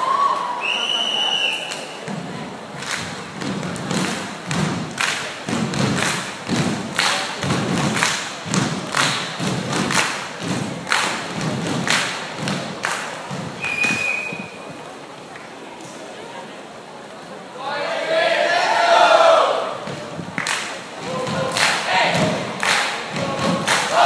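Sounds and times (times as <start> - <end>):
short high whistle: 0.6 - 2.0, 13.6 - 14.7
stomping on wooden stage: 3.0 - 13.6.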